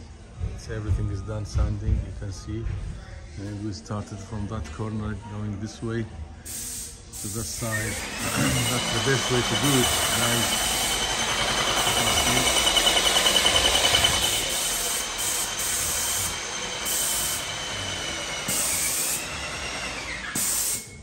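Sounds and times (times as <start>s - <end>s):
paint sprayer hissing: 6.5s - 21.0s
sprayer machine whine: 7.6s - 21.0s.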